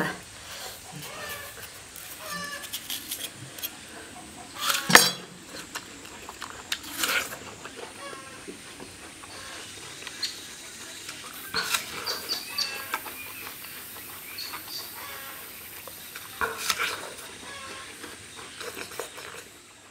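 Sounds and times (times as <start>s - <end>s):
chickens clucking: 0.0s - 19.9s
person biting and chewing apple: 0.9s - 3.8s, 4.6s - 7.8s.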